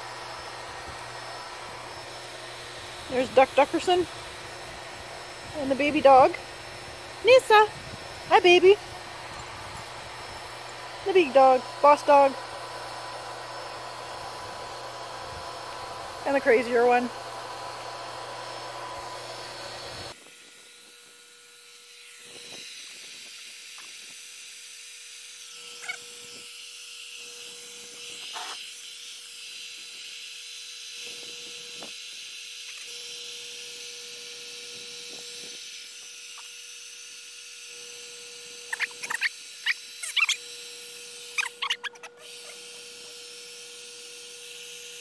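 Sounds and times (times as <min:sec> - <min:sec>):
electric air pump whining: 0:00.0 - 0:45.0
short high squeaks: 0:25.7 - 0:26.1, 0:38.6 - 0:40.5, 0:41.2 - 0:43.2.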